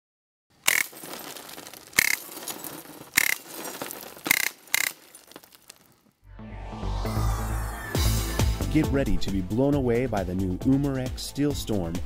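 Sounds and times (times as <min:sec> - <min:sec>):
glass shattering: 0:00.7 - 0:06.1
shards tinkling and scraping: 0:00.7 - 0:06.1.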